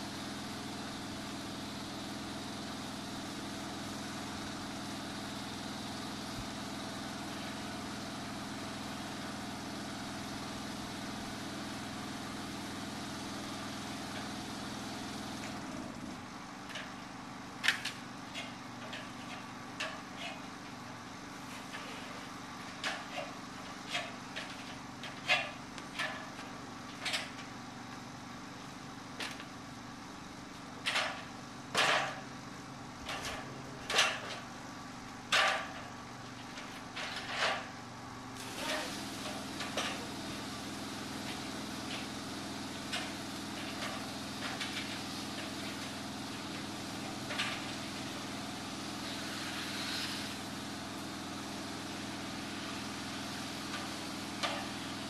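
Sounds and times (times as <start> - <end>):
pressure washer engine running: 0.0 - 55.0
water spraying hiss: 38.4 - 55.0.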